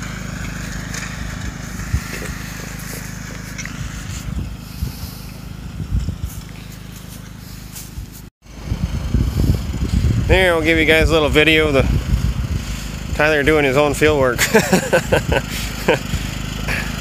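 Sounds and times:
distant lawn tractor engine: 0:00.0 - 0:17.0.

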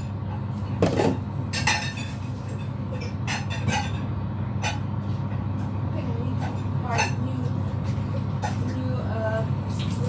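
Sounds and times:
low hum of kitchen equipment: 0:00.0 - 0:10.0
dishes and utensils clinking: 0:00.7 - 0:04.9, 0:06.3 - 0:10.0.

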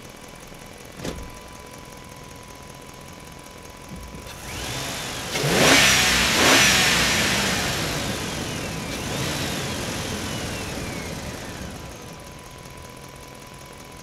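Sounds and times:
truck engine revving: 0:04.3 - 0:12.2.

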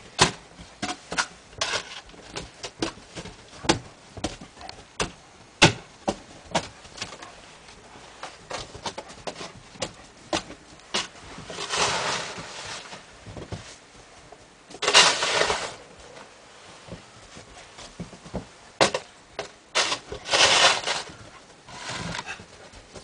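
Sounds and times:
snow shovel scraping snow: 0:11.0 - 0:13.1, 0:14.8 - 0:15.9, 0:19.8 - 0:22.4.

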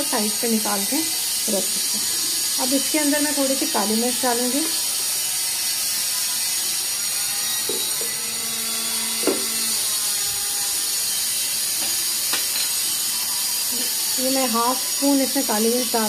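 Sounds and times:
masala sizzling in oil: 0:11.7 - 0:16.0.

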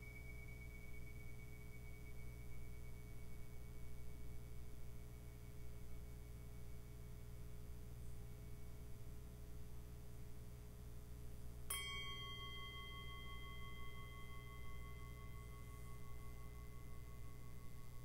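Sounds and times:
small cymbals ringing: 0:00.0 - 0:07.3, 0:11.6 - 0:18.0
steady low hum: 0:00.0 - 0:18.0.

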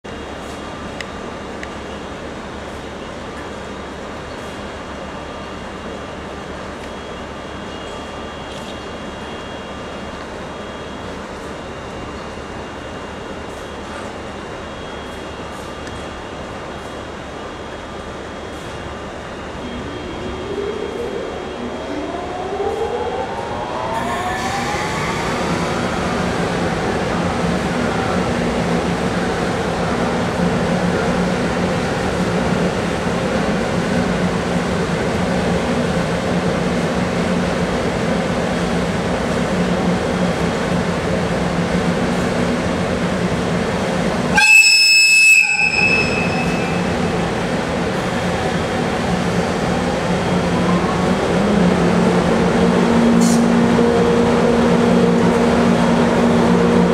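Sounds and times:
train running hum: 0:00.1 - 0:56.9
rising whine: 0:19.0 - 0:29.6
shrill train whistle: 0:44.3 - 0:47.0.

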